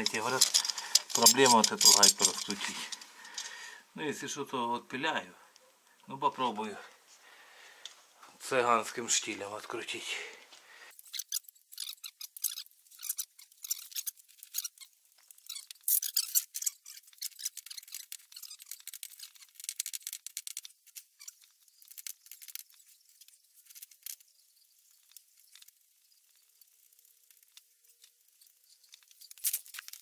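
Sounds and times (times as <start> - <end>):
wrench clicking and scraping: 0.0 - 3.6.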